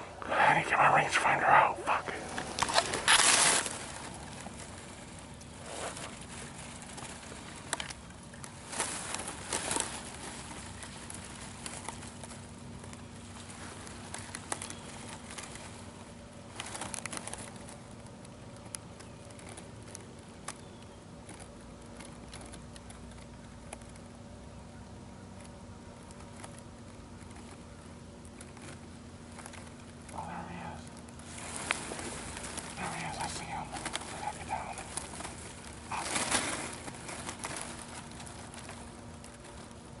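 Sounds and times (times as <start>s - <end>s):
dry grass rustling: 0.0s - 40.0s
faint steady hum: 0.0s - 40.0s.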